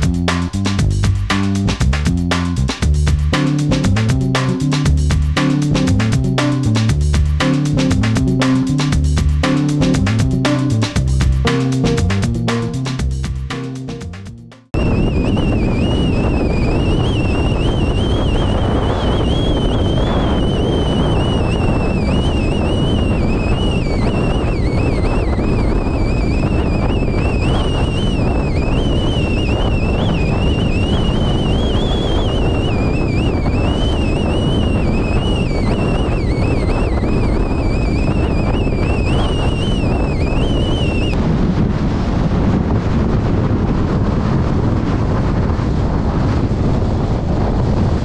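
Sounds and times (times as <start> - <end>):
high wind whistling: 0.0 - 13.2, 14.7 - 48.0
wind battering microphone: 0.0 - 13.5, 14.7 - 48.0.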